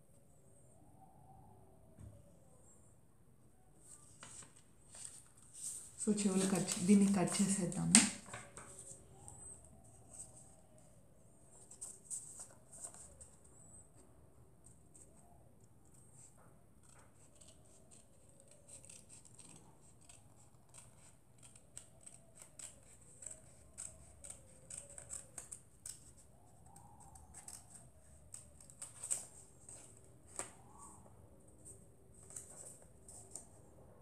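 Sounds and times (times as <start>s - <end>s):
scissors snipping paper: 6.0s - 8.3s, 16.8s - 30.4s.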